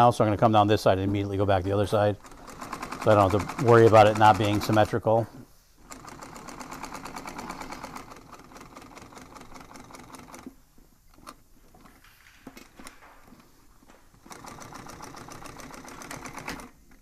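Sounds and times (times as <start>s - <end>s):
sewing machine stitching: 1.1s - 5.0s, 5.8s - 12.0s, 14.1s - 17.0s.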